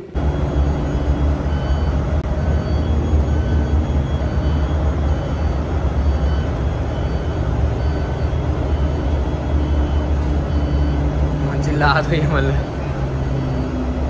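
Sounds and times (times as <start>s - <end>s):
shuttle bus rumble from inside: 0.0s - 14.0s.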